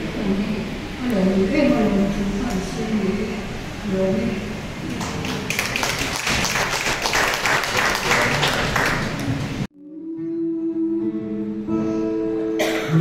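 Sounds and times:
crowd applauding: 4.9s - 9.7s
music: 9.7s - 13.0s.

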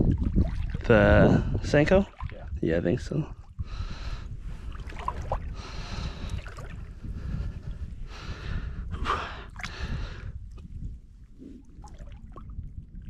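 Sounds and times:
wind rumble on microphone: 0.0s - 13.0s
waves lapping against rocks: 4.6s - 7.0s.

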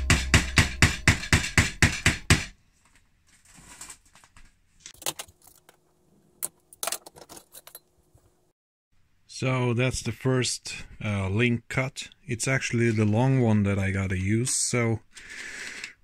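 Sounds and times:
background music with beat: 0.0s - 1.8s
metal chain clicking and rattling: 6.6s - 7.9s.

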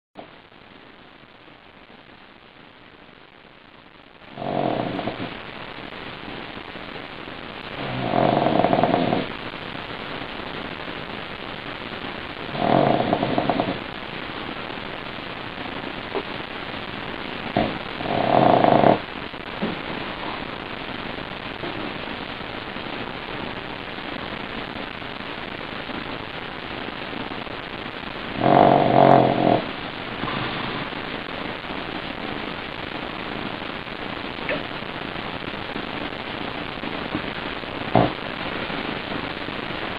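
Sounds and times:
steady background hiss: 0.2s - 39.9s
dog snoring: 4.3s - 5.3s, 7.8s - 9.3s, 12.5s - 13.9s, 17.5s - 19.0s, 28.4s - 30.4s.

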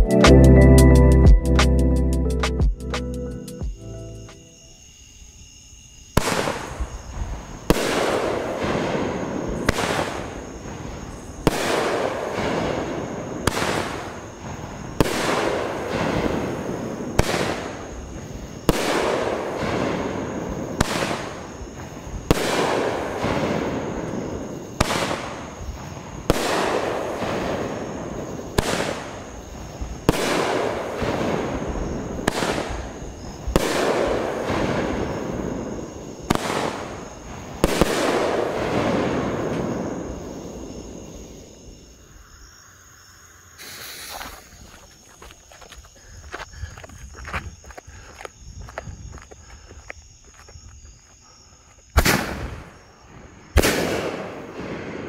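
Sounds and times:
firework shells firing: 6.2s - 6.9s, 7.7s - 18.0s, 18.6s - 21.6s, 22.3s - 25.6s, 26.2s - 29.3s, 30.0s - 35.7s, 36.3s - 40.2s, 52.0s - 52.8s, 53.5s - 55.0s.

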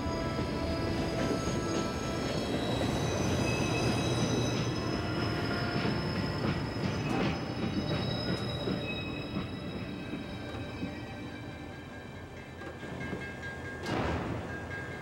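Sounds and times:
high-pitched wheel squeal: 0.0s - 10.7s
train knocks: 0.0s - 15.0s
train rumble: 0.0s - 15.0s.

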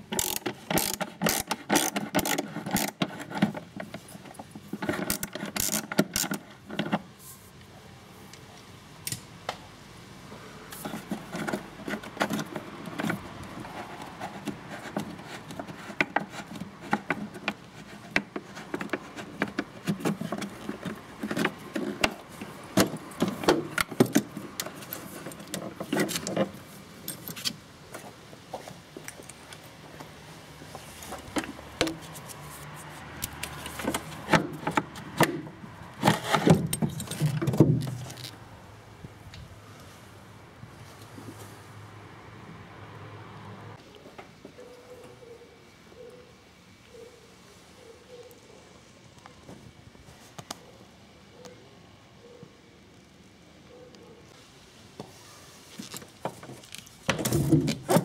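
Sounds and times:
metal tools clinking and rattling: 36.1s - 38.3s.

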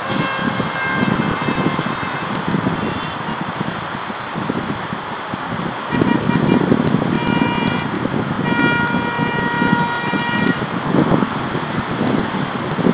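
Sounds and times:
car horn honking: 0.0s - 3.4s, 5.9s - 10.6s
city traffic rumble: 0.0s - 12.9s.

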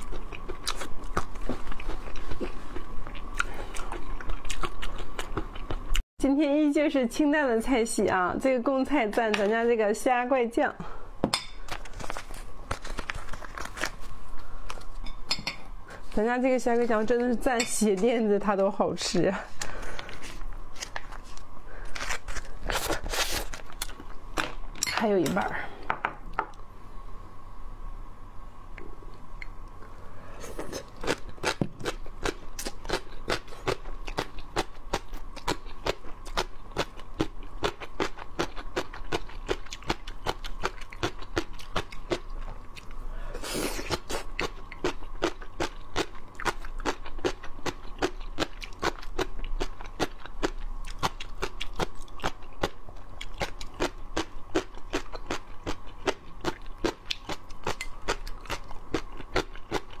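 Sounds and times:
crunchy chewing: 0.0s - 6.0s, 30.4s - 60.0s.

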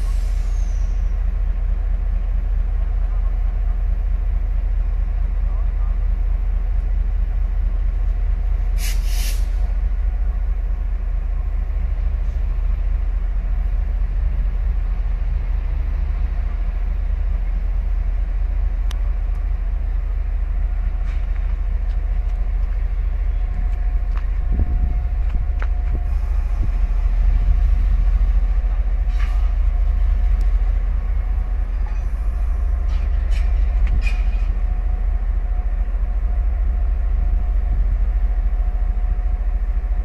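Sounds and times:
air brake hiss: 0.0s - 1.1s, 8.8s - 9.7s
locomotive rumbling at idle: 0.0s - 40.0s.

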